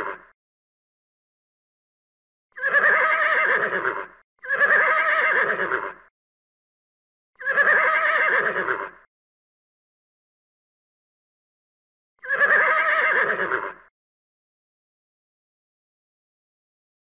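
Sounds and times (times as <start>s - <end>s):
horse whinnying: 2.6s - 6.1s, 7.4s - 9.1s, 12.2s - 13.9s.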